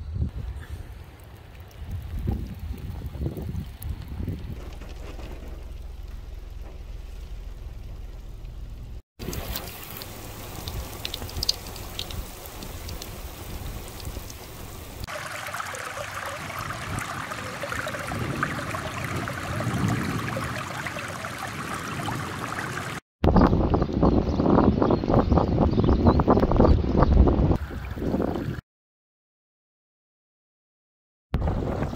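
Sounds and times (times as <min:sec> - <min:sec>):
water rushing over stones: 0:09.2 - 0:23.0.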